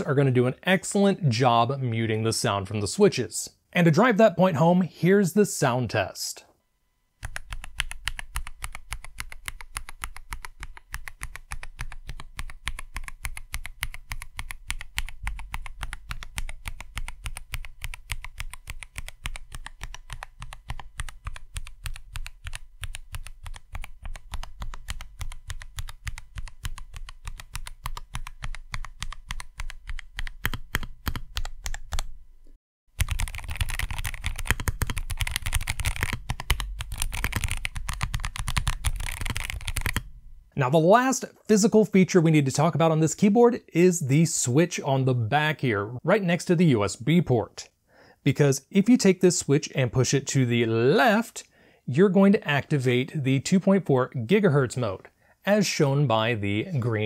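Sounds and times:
clicky mechanical keyboard typing: 7.2 - 32.1, 33.0 - 40.1.

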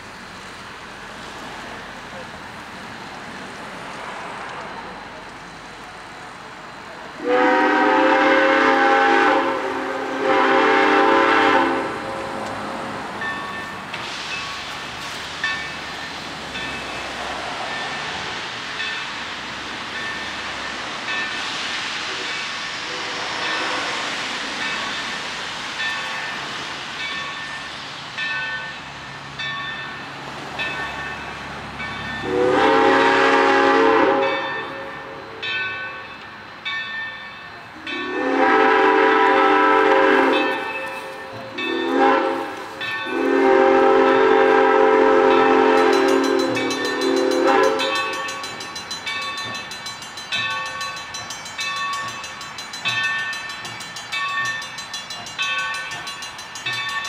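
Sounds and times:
steam locomotive chime whistle: 7.1 - 12.5, 19.9 - 25.2, 25.8 - 57.0
bell ringing: 45.8 - 57.0.

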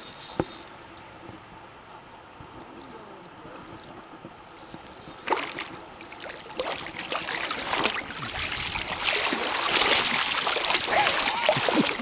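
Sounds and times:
net splashing through water: 5.2 - 12.0.

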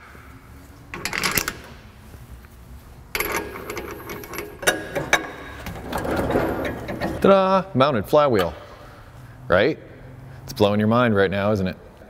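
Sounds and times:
steel spacers clinking: 3.1 - 7.4.

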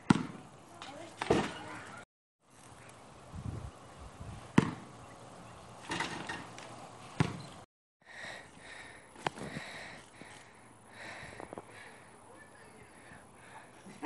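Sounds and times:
basketball thudding: 0.0 - 0.4, 1.2 - 1.8, 4.5 - 4.9, 7.2 - 7.5.

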